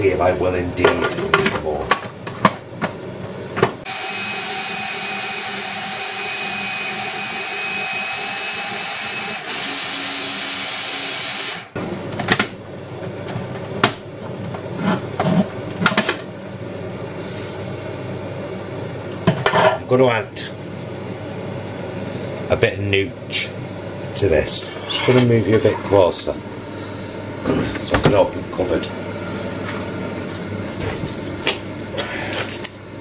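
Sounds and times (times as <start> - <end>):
food processor motor whirring: 3.9 - 11.7.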